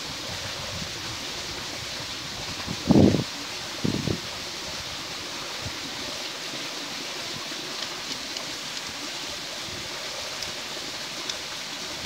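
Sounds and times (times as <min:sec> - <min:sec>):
waterfall rushing: 0:00.0 - 0:12.0
faint clicks: 0:07.7 - 0:09.0, 0:11.2 - 0:11.5.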